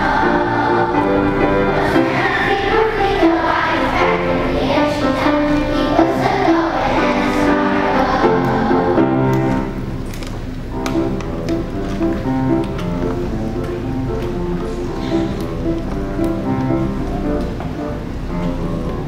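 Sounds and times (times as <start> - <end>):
children singing together: 0.0 - 9.8
musical accompaniment: 0.0 - 19.0.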